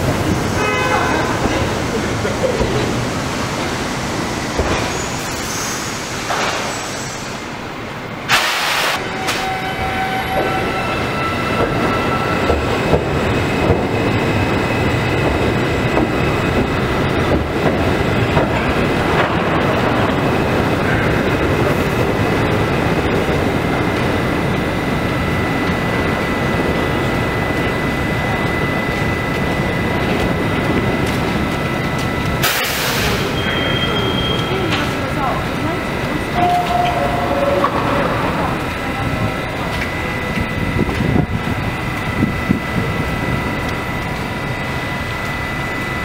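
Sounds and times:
subway train high whine: 0.0 - 46.0
sharp hiss of air: 8.3 - 9.0.

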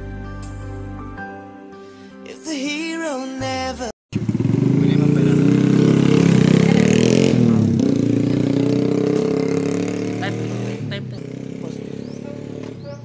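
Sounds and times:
music with singing: 0.0 - 4.0.

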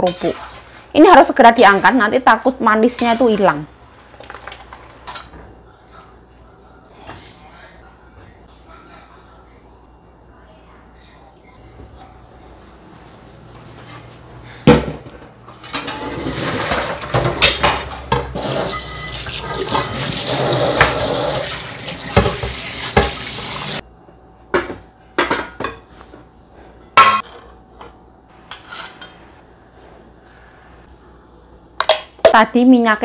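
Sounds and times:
dishes and utensils clattering: 13.8 - 23.8, 26.9 - 29.2
kitchenware clinks and knocks: 14.7 - 20.1, 27.0 - 27.5
tap running into a sink: 21.8 - 23.8.

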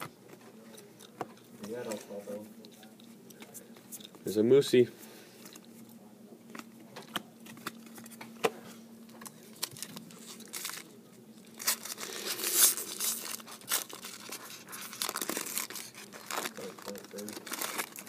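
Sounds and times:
foil card pack crinkling: 9.2 - 18.0.

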